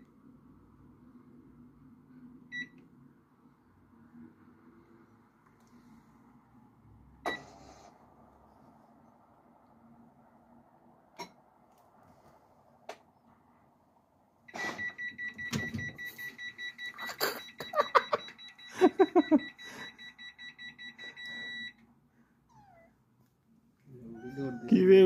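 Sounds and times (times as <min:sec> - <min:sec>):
washing machine electronic beeps: 0:02.5 - 0:02.8, 0:14.5 - 0:21.8.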